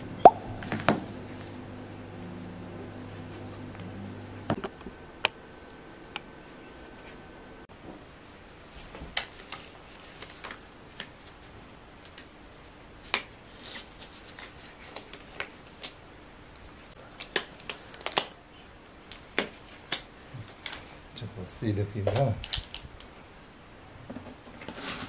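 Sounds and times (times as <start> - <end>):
rubber gloves snapping and crinkling: 9.0 - 11.4, 12.0 - 12.4, 13.0 - 21.0, 22.1 - 23.2.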